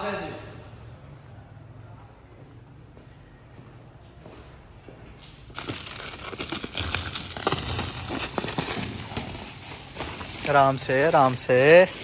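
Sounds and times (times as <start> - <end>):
irregular rustling: 5.6 - 12.0.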